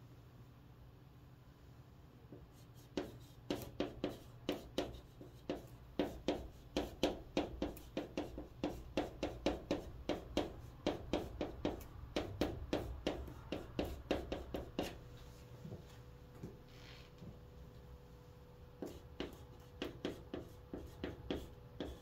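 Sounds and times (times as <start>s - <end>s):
chalk writing on chalkboard: 2.3s - 15.0s, 18.8s - 22.0s.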